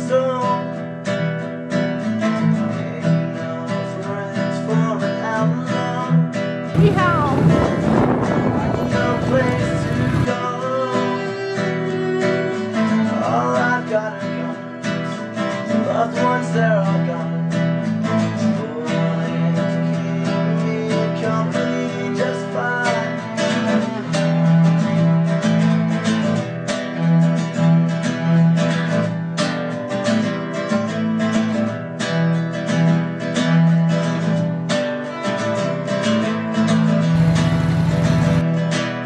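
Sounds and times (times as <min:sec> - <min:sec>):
strummed acoustic guitar: 0:00.0 - 0:39.0.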